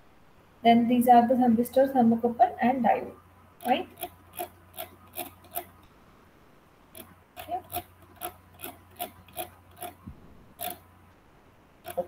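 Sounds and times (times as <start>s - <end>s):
faint mains hum: 0.0s - 12.0s
computer mouse clicks: 3.6s - 5.7s, 7.0s - 10.0s, 10.6s - 10.8s.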